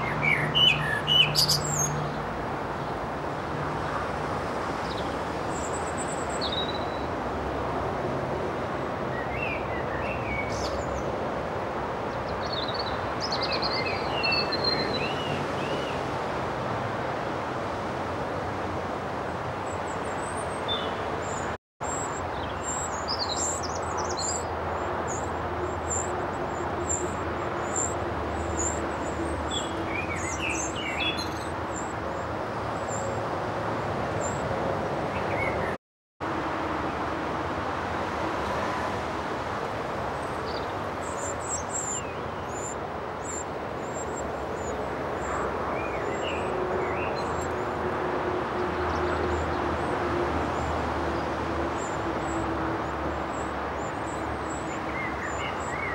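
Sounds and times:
young wrens chirping: 0.0 - 2.2, 40.5 - 47.6.

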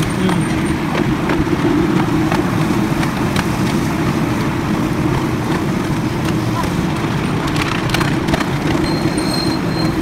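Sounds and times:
miniature train rumbling on track: 0.0 - 10.0
wheels clicking on rails: 0.0 - 10.0.

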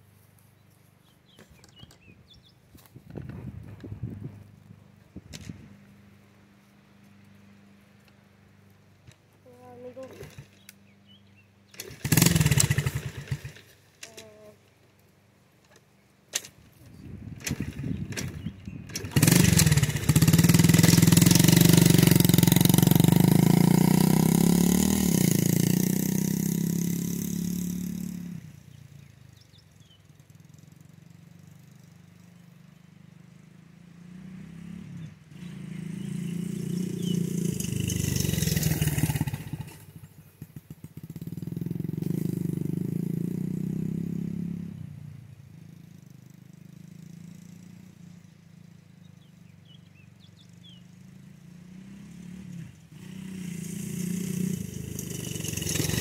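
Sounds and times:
dirt bike engine revving: 9.5 - 14.6, 16.3 - 56.0.

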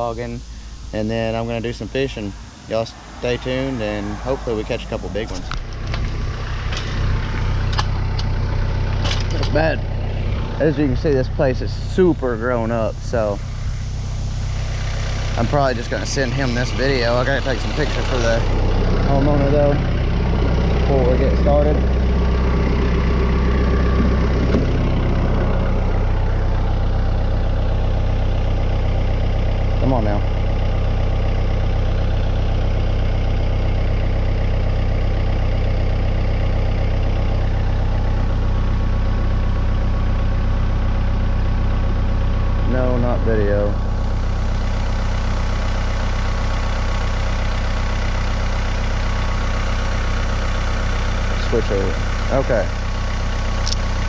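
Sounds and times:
tractor engine idling: 0.0 - 54.0
single click: 53.6 - 53.8.

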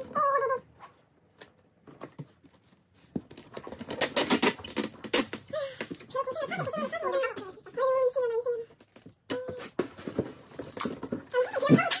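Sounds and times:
packing tape crackling: 3.3 - 5.9.

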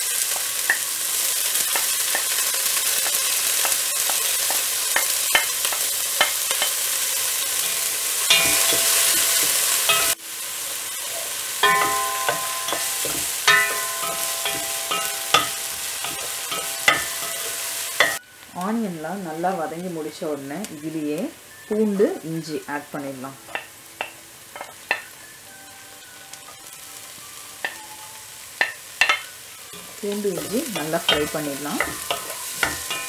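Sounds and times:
onions sizzling in oil: 0.0 - 33.0
wooden spoon knocking and scraping pot: 8.3 - 10.2, 11.6 - 18.2, 28.6 - 33.0.

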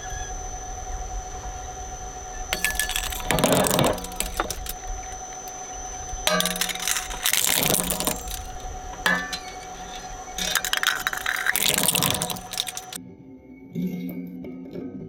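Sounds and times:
shredder humming: 0.0 - 13.0
cracking and crunching toys: 2.5 - 13.0.

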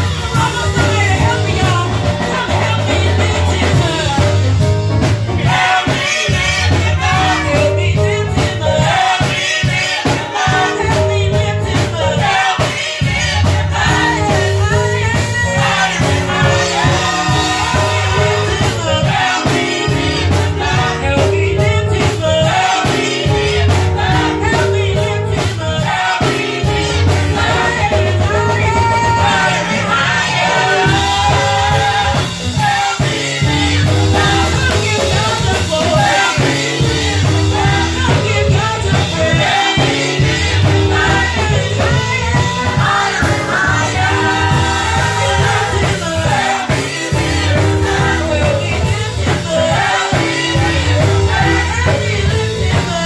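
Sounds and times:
gospel singers through loudspeakers: 0.0 - 53.0
instrumental backing with beat: 0.0 - 53.0
strong bass line: 13.0 - 22.5, 26.6 - 53.0.

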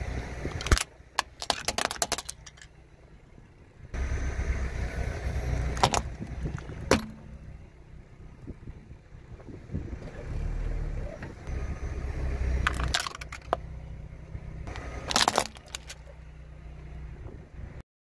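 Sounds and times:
low engine rumble: 0.0 - 17.8
plastic cracking: 0.5 - 2.7, 5.8 - 7.1, 12.7 - 13.6, 14.7 - 16.1.

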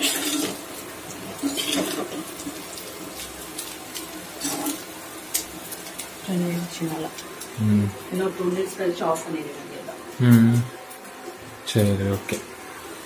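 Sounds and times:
oil sizzling: 0.0 - 13.0
metal spatula scraping pan: 1.4 - 2.2.

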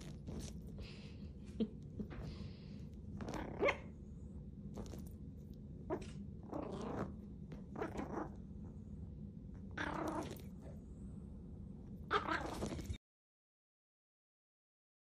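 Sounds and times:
dog growling yaps: 3.2 - 4.0, 5.9 - 8.4, 9.7 - 10.5, 12.1 - 12.8.

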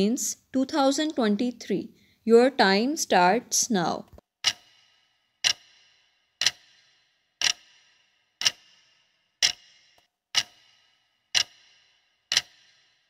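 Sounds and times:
clock ticking with ringing tail: 4.4 - 13.0.

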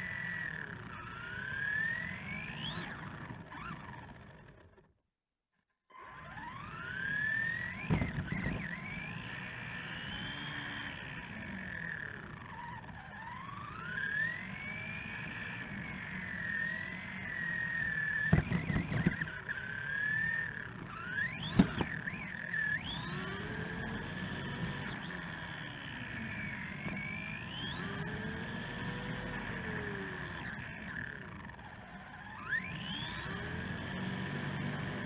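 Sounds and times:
electric motor whine: 0.0 - 4.7, 5.9 - 35.0
sharp knocks of bumps: 18.3 - 19.3, 21.4 - 22.0.

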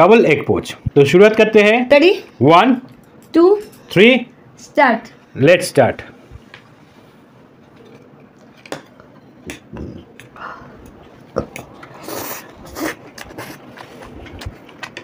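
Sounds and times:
chewing and slurping noodles: 11.4 - 14.9.

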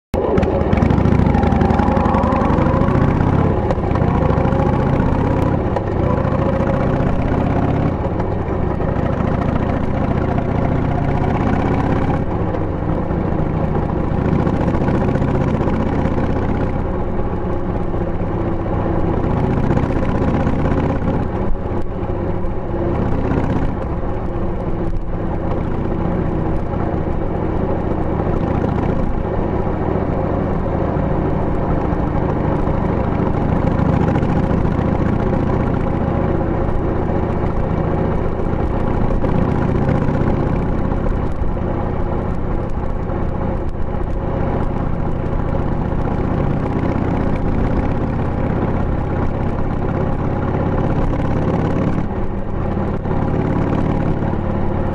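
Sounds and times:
motorcycle engine running: 0.2 - 54.9.

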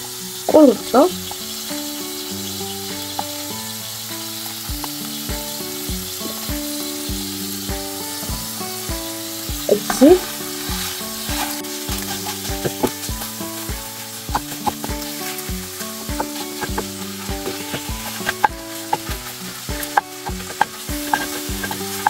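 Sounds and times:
fish sizzling in a pan: 0.0 - 22.0
wooden spatula scraping a pan: 9.7 - 22.0.

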